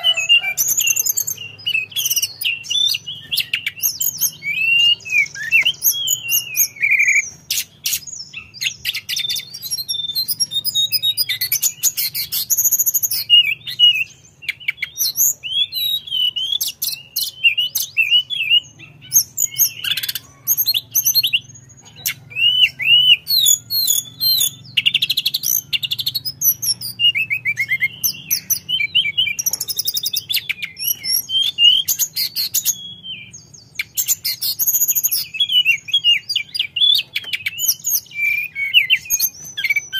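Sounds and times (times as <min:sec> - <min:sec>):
bird singing whistles and trills: 0:00.0 - 0:39.9.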